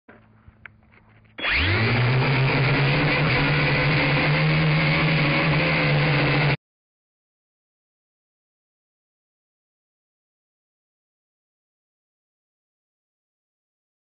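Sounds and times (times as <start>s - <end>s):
drone motors and propellers spinning: 1.4s - 6.6s.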